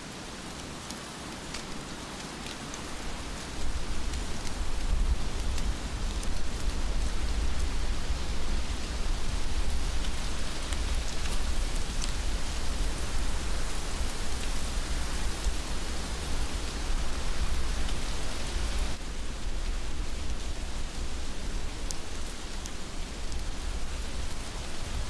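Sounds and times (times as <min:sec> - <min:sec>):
heavy rain falling: 0:00.0 - 0:25.0
close raindrops ticking: 0:00.2 - 0:25.0.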